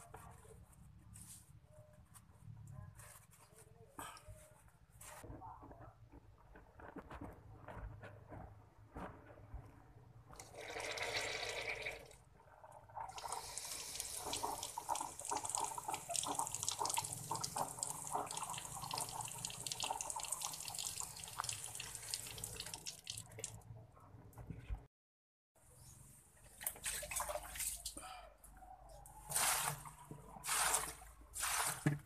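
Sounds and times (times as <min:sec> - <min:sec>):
water splattering from a hose: 0:13.1 - 0:23.6, 0:30.4 - 0:32.0.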